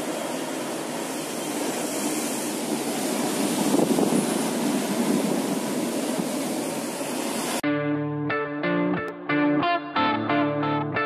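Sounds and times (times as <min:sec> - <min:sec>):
sea water rushing along hull: 0:00.0 - 0:07.6
wind buffeting microphone: 0:01.8 - 0:07.0.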